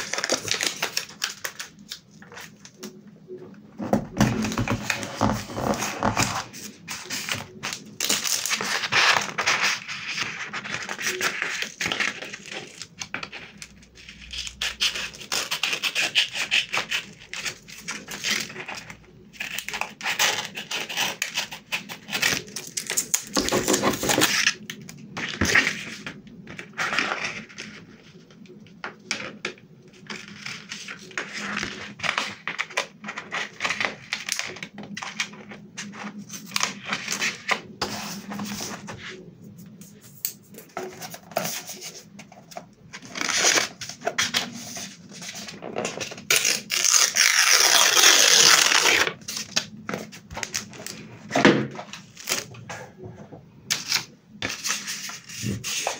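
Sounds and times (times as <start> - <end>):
crinkle of paper and foil: 0.0 - 3.0, 4.2 - 52.6
scissors snipping paper: 10.6 - 24.5.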